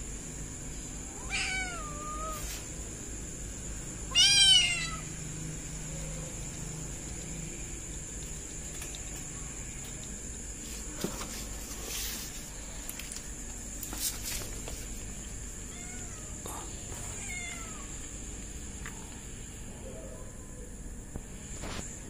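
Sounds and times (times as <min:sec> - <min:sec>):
kitten meowing: 0:01.2 - 0:02.4, 0:04.1 - 0:05.1, 0:17.2 - 0:17.9.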